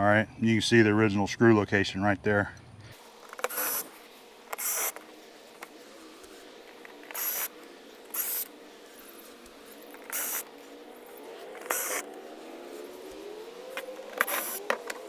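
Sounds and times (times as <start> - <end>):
cordless drill whining: 3.2 - 15.0.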